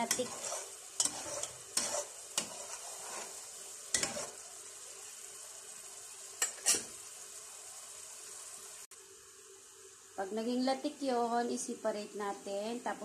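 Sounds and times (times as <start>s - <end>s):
metal spoon scraping a pot: 0.0s - 4.4s, 6.4s - 7.0s
coconut curds sizzling in oil: 0.0s - 13.0s.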